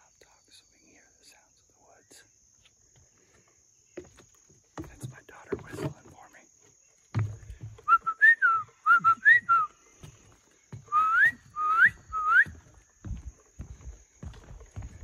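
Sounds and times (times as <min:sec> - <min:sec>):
faint footsteps: 0:02.6 - 0:15.0
person whistling: 0:07.9 - 0:09.7, 0:10.9 - 0:12.6.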